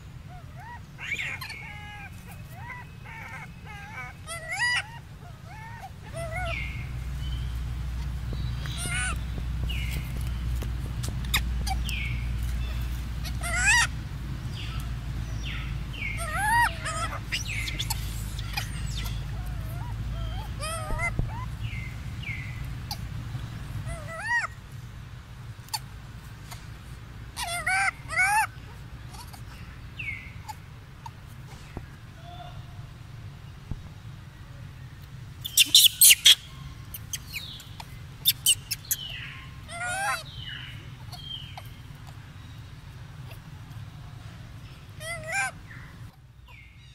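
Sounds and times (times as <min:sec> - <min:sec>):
steady low hum: 0:00.0 - 0:46.9
wavering animal call: 0:00.2 - 0:07.0, 0:08.6 - 0:10.1, 0:11.3 - 0:23.1, 0:27.4 - 0:31.2, 0:38.2 - 0:42.3, 0:45.0 - 0:46.6
high-pitched wavering animal calls: 0:11.3 - 0:14.8, 0:15.4 - 0:23.0, 0:35.5 - 0:42.2.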